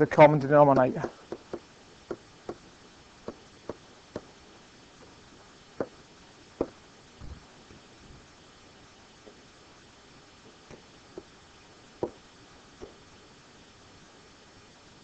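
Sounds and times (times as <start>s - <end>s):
pen tapping on a whiteboard: 0.8s - 2.6s, 3.2s - 4.3s, 12.0s - 12.2s.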